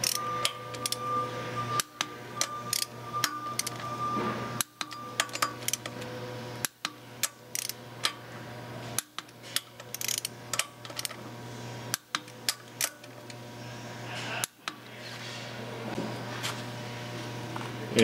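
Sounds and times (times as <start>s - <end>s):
torque wrench clicking: 0.0s - 1.0s, 1.8s - 3.8s, 4.6s - 6.0s, 6.6s - 8.2s, 9.0s - 11.2s
steady low hum: 0.0s - 18.0s.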